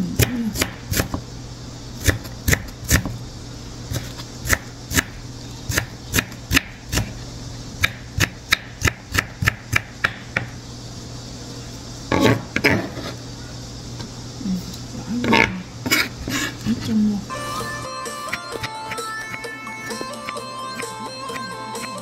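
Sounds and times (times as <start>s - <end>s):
knife chopping on wooden board: 0.2s - 1.2s.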